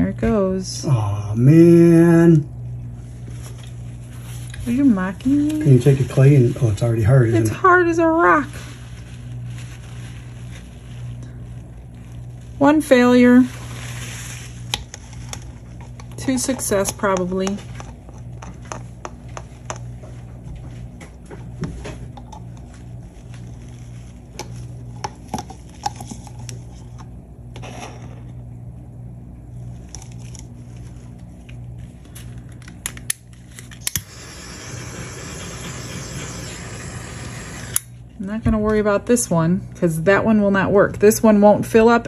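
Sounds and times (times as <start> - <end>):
handheld torch hissing: 33.8 - 37.9.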